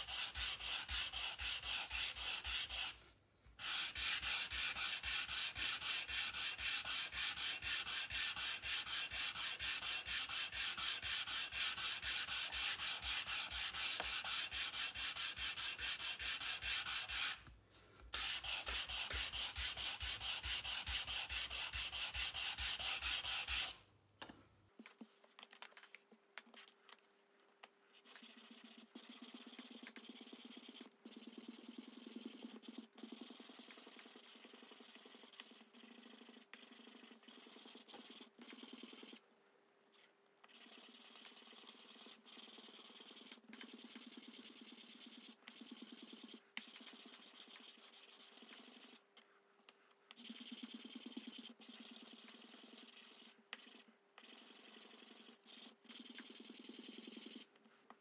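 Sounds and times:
sanding block rubbing wood: 0:00.0 - 0:03.0, 0:03.6 - 0:17.4, 0:18.2 - 0:23.8.

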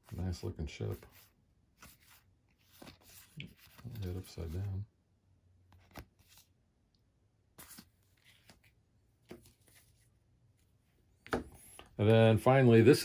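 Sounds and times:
playing cards tapping and rustling: 0:00.9 - 0:04.8, 0:11.2 - 0:12.3.

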